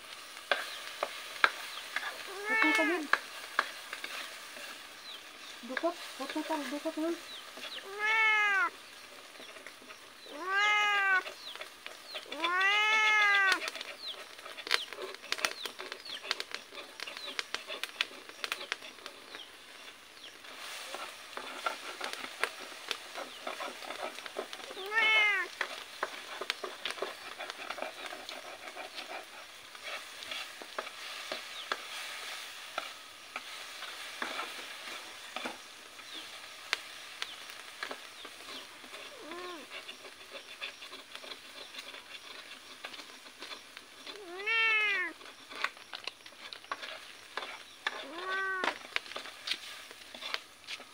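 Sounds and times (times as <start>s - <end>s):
wok sizzling and crackling: 0.0s - 50.9s
stirring scrape: 0.2s - 50.9s
cat meowing: 2.3s - 3.1s, 7.8s - 8.7s, 10.3s - 11.3s, 12.2s - 13.7s, 24.7s - 25.5s, 39.2s - 39.6s, 44.1s - 45.2s, 48.0s - 48.8s.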